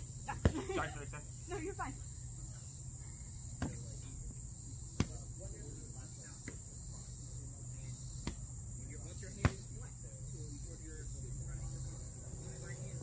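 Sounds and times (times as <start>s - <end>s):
high insect chorus: 0.0s - 13.0s
foam swords smacking: 5.0s - 5.2s.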